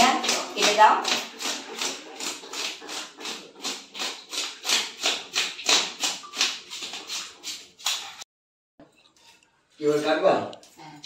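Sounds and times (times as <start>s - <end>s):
rhythmic scraping of fish: 0.0s - 8.3s.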